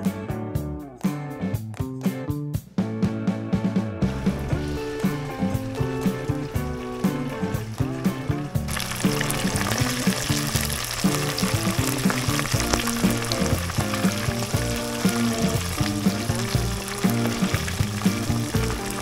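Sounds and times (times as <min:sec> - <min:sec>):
background music: 0:00.0 - 0:19.0
food sizzling in hot oil: 0:04.2 - 0:19.0.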